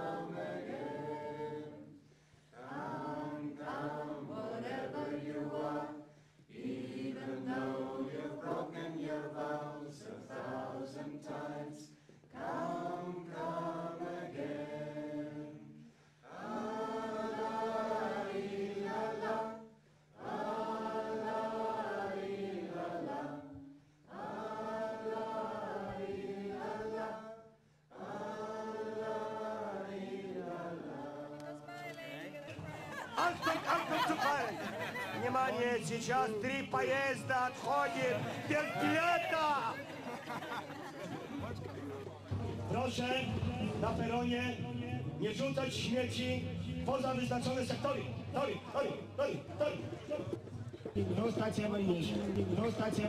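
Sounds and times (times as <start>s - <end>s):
choir chanting: 0.0s - 2.0s, 2.6s - 35.4s, 37.5s - 42.8s.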